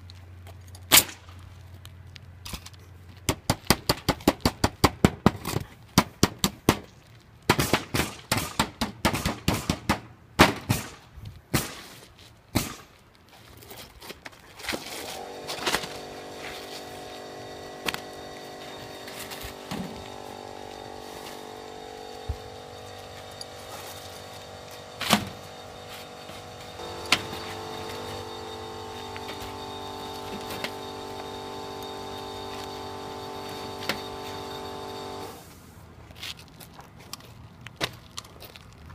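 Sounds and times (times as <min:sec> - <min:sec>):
shingles being handled: 0:11.3 - 0:38.9
steady multi-tone hum: 0:14.6 - 0:36.2.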